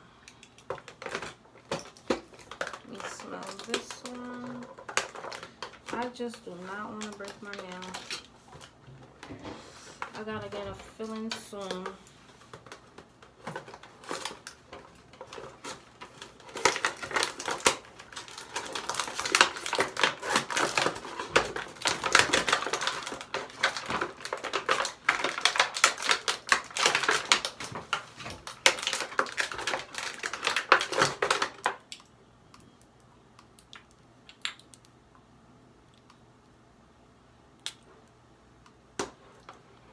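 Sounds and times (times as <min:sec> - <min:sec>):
packaging crackling and clicking: 0:00.3 - 0:09.3, 0:10.0 - 0:32.7.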